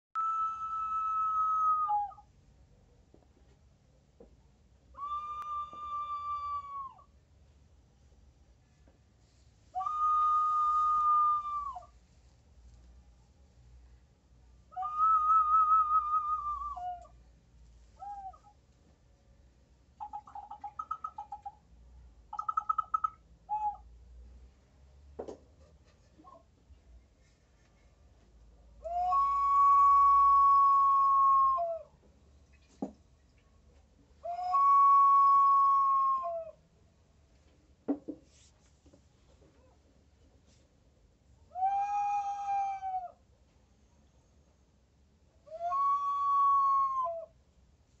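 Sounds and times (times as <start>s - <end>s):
whistling vessel tone: 0.2s - 2.3s, 5.0s - 6.9s, 9.8s - 11.9s, 14.7s - 17.0s, 28.8s - 31.9s, 34.2s - 36.5s
ceramic whistling vessel hooting: 9.8s - 11.9s
clay vessel knocking on table: 37.9s - 38.2s.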